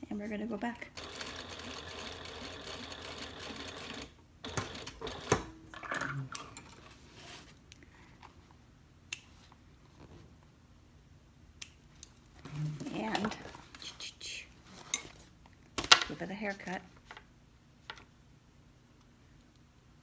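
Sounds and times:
sewing machine stitching: 1.0 - 5.4.

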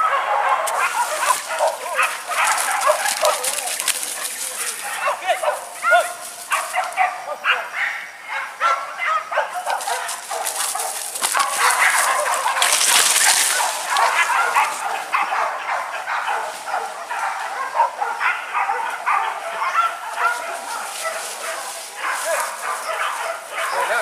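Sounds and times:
dogs barking and yelping: 0.0 - 24.0
rustling hiss: 0.6 - 7.0, 9.6 - 15.2, 20.0 - 23.8.

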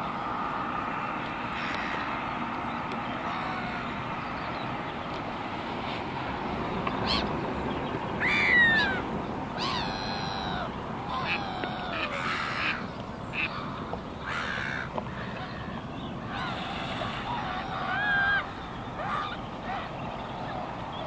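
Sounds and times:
distant traffic hum: 0.0 - 21.0
birds giving harsh calls: 7.0 - 7.4, 8.2 - 21.0.

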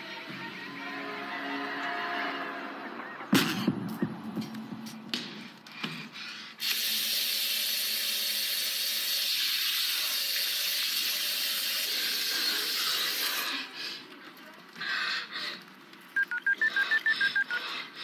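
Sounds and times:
tap water running into basin: 6.6 - 13.3.

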